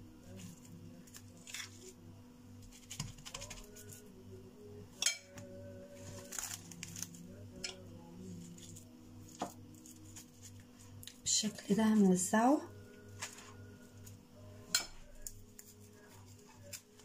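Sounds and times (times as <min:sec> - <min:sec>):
low hum: 0:00.0 - 0:17.0
metal spoon scraping and tapping: 0:05.0 - 0:05.4.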